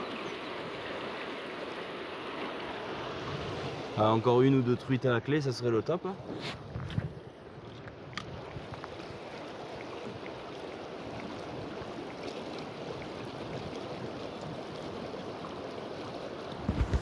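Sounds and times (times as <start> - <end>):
river water rushing: 0.0 - 6.4, 7.2 - 17.0.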